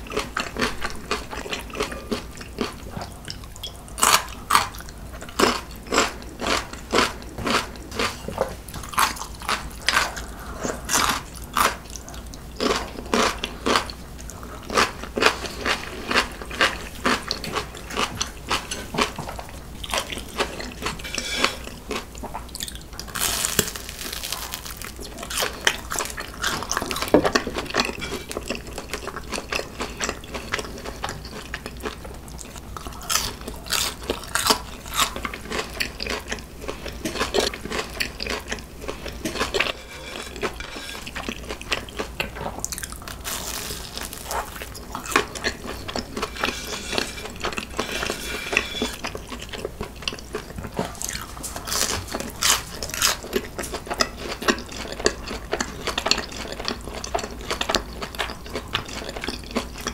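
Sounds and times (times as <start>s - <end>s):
crunchy bites and chewing: 8.8s - 11.8s, 19.8s - 36.4s, 37.0s - 59.9s.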